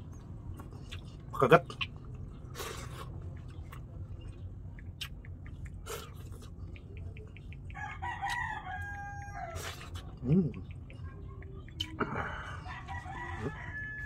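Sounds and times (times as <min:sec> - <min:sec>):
rooster crowing: 0:07.8 - 0:09.7, 0:12.6 - 0:14.0.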